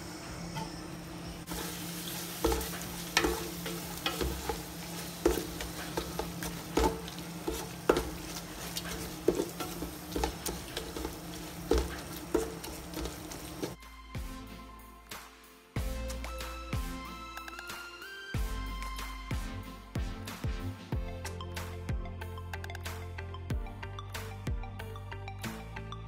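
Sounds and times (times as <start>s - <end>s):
food sizzling in a pan: 0.2s - 13.8s
wooden spatula knocking pan: 2.3s - 13.8s.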